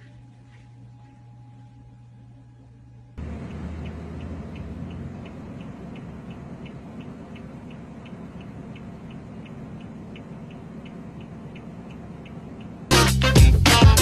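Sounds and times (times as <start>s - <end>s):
low rumble of moving car: 3.2s - 14.0s
turn signal ticking: 3.2s - 14.0s.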